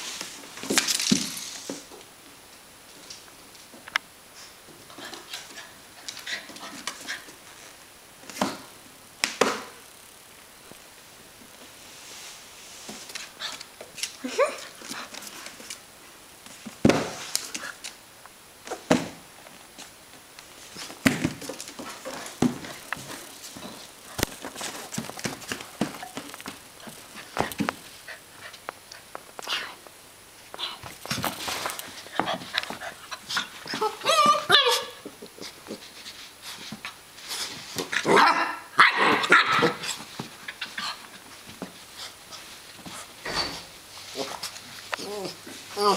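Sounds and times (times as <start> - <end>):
puppy thumping on floor: 16.6 - 17.6, 20.8 - 27.8
puppy whining: 33.6 - 35.2
puppy yipping: 33.8 - 35.0.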